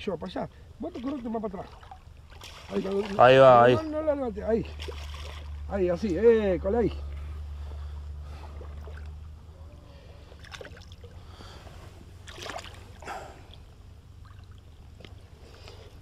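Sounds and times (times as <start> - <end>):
low steady rumble: 0.0 - 16.0
water splashing and sloshing: 0.8 - 6.3, 7.0 - 16.0.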